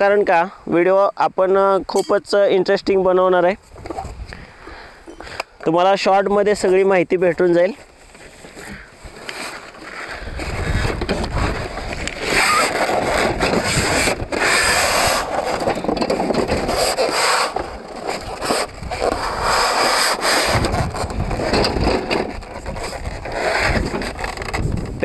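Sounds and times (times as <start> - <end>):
wind buffeting microphone: 2.9 - 4.6, 10.2 - 16.9, 17.6 - 19.8, 20.4 - 25.0
cardboard box rustling: 7.6 - 25.0.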